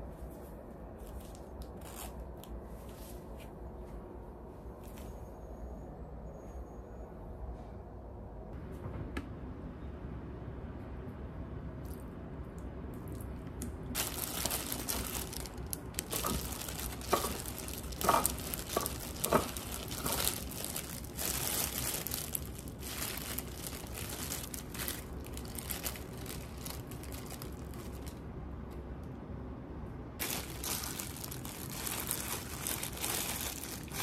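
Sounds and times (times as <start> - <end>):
plastic glove crinkling: 1.0 - 3.4, 14.0 - 28.2, 30.2 - 34.0.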